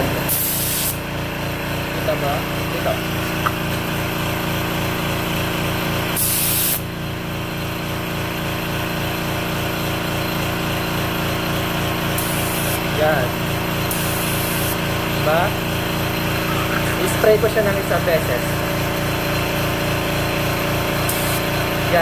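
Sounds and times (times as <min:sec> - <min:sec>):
air compressor pulsing hum: 0:00.0 - 0:22.0
spray gun hissing: 0:00.3 - 0:01.0, 0:06.2 - 0:06.8, 0:12.2 - 0:12.9, 0:13.8 - 0:14.9, 0:21.0 - 0:21.6.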